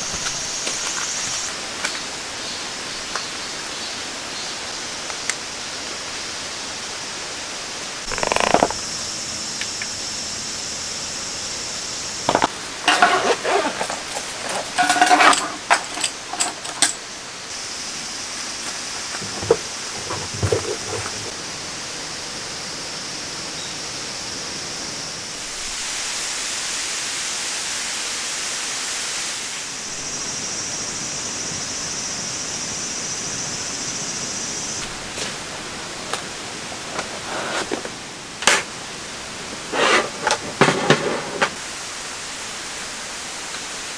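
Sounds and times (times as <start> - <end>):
steady rushing hiss: 0.0 - 43.9
plastic cases clattering: 12.3 - 17.0, 19.2 - 21.3.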